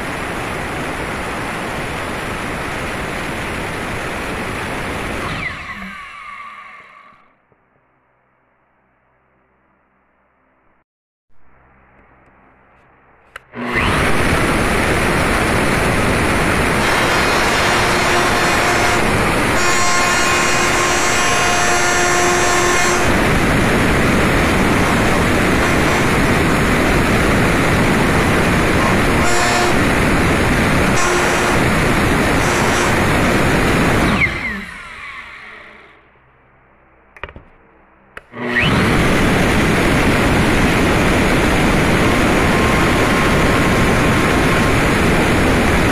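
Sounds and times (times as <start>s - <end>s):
pitched whine: 0.0s - 7.4s, 11.4s - 45.9s
router cutting aluminium: 13.4s - 14.8s.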